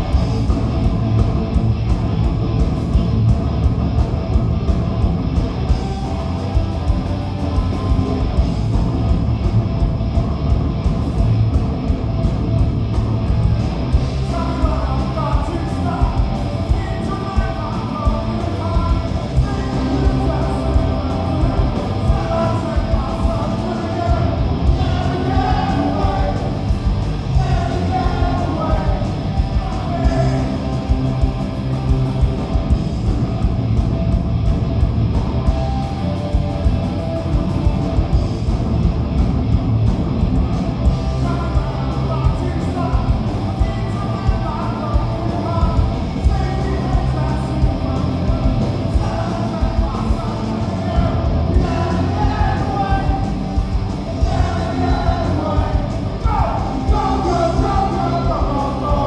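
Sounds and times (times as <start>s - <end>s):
drums beating: 0.0s - 59.0s
punk rock band playing: 0.0s - 59.0s
man singing into microphone: 14.3s - 26.6s, 27.3s - 30.6s, 48.9s - 53.3s, 54.2s - 59.0s.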